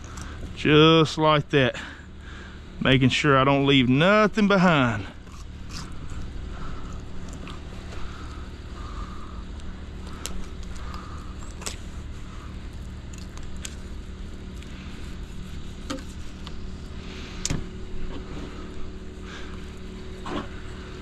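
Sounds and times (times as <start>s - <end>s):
low motor hum: 0.0s - 21.0s
knife scraping fish: 14.5s - 16.8s.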